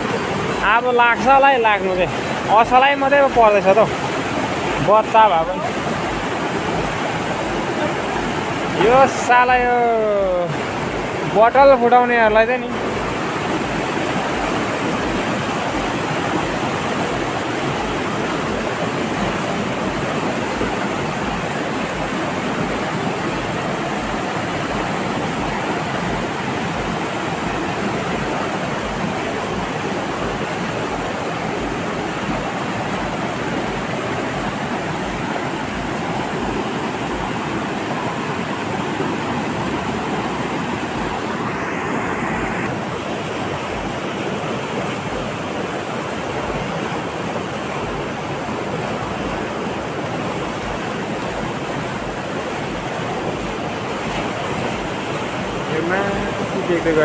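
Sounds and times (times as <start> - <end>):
river rushing over boulders: 0.0 - 57.0.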